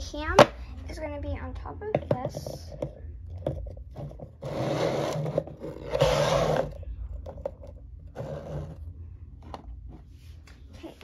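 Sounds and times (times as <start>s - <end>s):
objects scraping across a desk: 3.9s - 10.4s.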